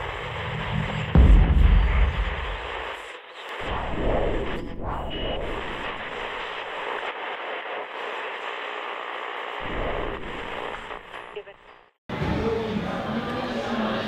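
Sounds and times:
deep rumble: 0:00.6 - 0:02.9.

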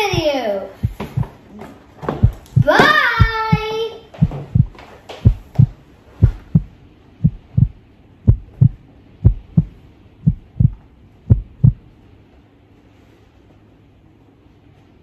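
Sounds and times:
heartbeat double thump: 0:00.0 - 0:01.4, 0:02.1 - 0:11.9.

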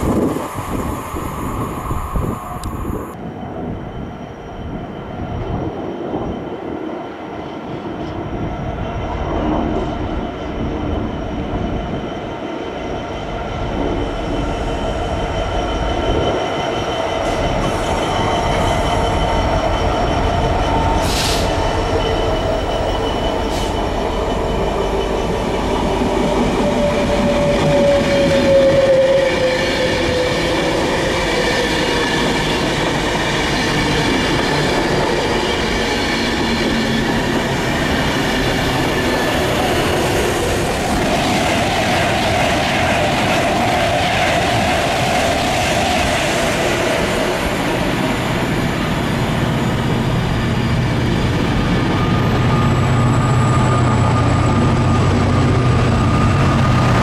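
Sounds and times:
diesel locomotive passing: 0:00.0 - 0:57.0
electric train passing: 0:00.0 - 0:57.0
train whine falling in pitch: 0:13.8 - 0:57.0.

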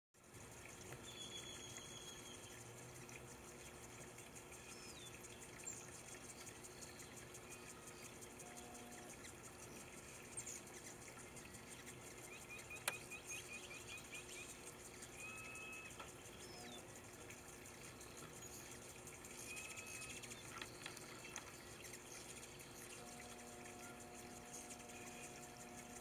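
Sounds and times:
bird chirps: 0:01.0 - 0:03.3, 0:04.0 - 0:26.0
whistled bird note: 0:15.2 - 0:16.8, 0:19.4 - 0:20.4.

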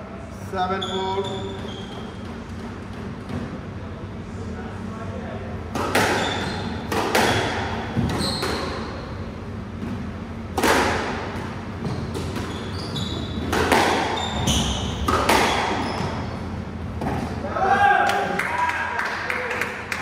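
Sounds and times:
shoes squeaking on wooden floor: 0:00.8 - 0:02.9, 0:06.2 - 0:08.9, 0:11.8 - 0:16.5
squash ball struck by rackets: 0:05.7 - 0:09.0, 0:09.8 - 0:12.5, 0:13.3 - 0:16.2.

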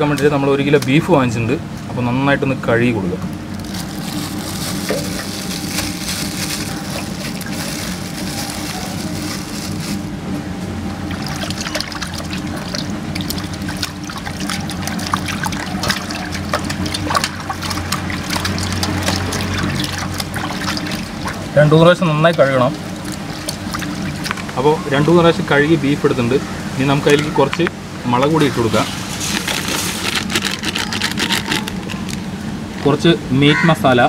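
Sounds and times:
steady low hum: 0:00.0 - 0:34.0
water sloshing in metal basin: 0:11.0 - 0:25.3.

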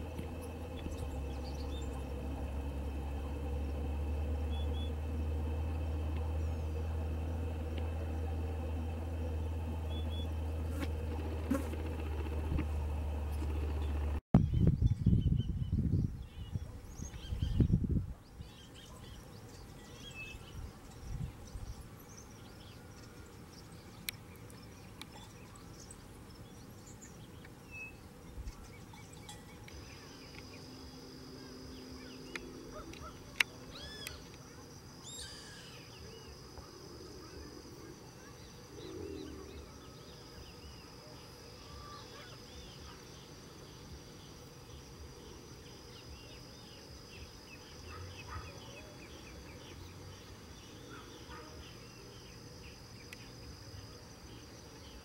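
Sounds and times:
high-pitched insect buzz: 0:10.6 - 0:11.9
bird calls and chirps: 0:13.8 - 0:30.8, 0:31.4 - 0:53.5.

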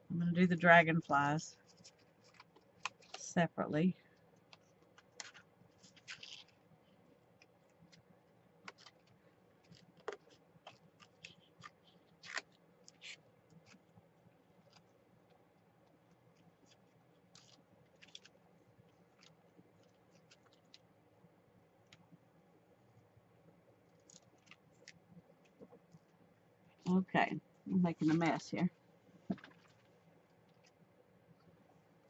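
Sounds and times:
paper rustling: 0:01.6 - 0:03.2, 0:05.2 - 0:06.6, 0:16.4 - 0:18.4.

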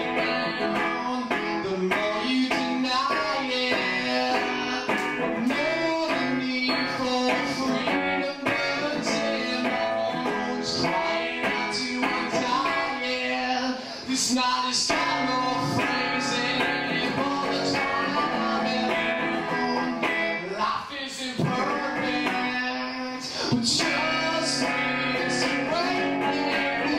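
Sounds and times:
electric guitar strumming: 0:00.0 - 0:26.9
man singing: 0:00.0 - 0:26.9.

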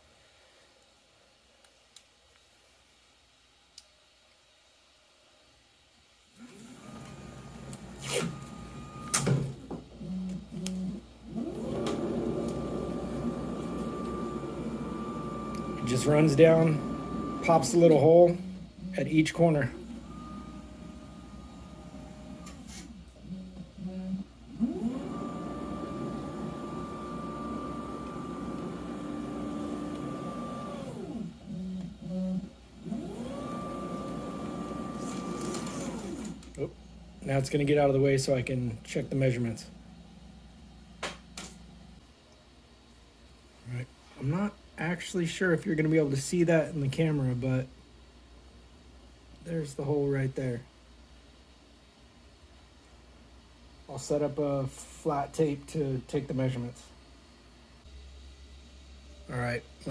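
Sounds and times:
stepper motors whining: 0:06.4 - 0:36.8
short low motor hums: 0:06.4 - 0:37.3.

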